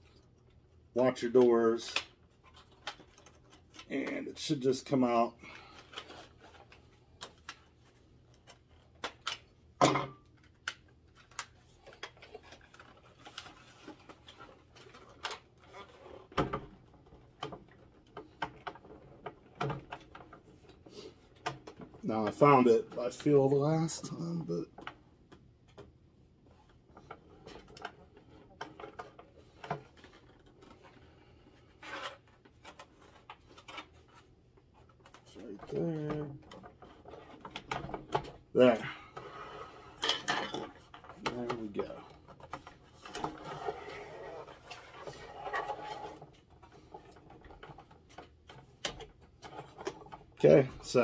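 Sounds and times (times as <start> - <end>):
plastic scrape: 11.7 - 16.4, 26.5 - 51.0.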